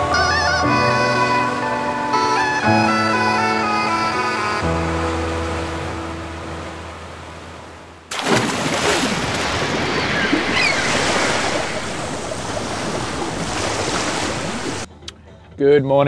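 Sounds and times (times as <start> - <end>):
music: 0.0 - 7.2, 14.9 - 16.0
ocean waves and surf: 0.0 - 14.9
faint high calls: 9.7 - 11.5.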